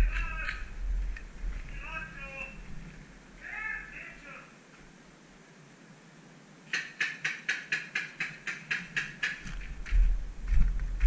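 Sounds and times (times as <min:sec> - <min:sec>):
low rumble against camera: 0:00.0 - 0:03.3, 0:09.6 - 0:11.0
paintball marker shots: 0:06.7 - 0:09.4.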